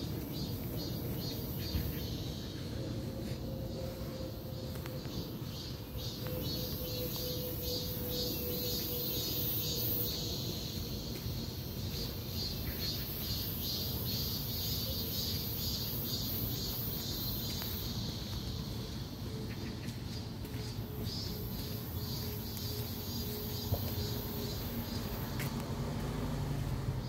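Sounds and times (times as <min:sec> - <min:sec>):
high-pitched chorus of birds or insects: 0:00.0 - 0:27.0
low rumble of wind: 0:00.0 - 0:27.0.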